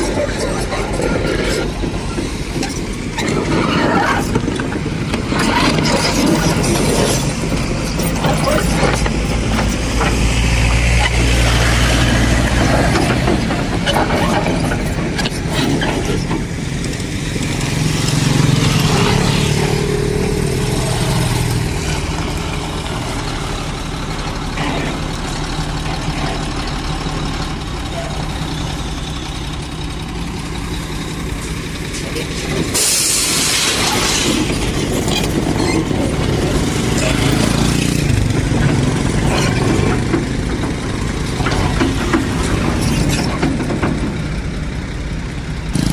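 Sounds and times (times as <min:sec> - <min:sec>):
excavator diesel engine running: 0:00.0 - 0:45.9
loud hiss: 0:32.7 - 0:34.2.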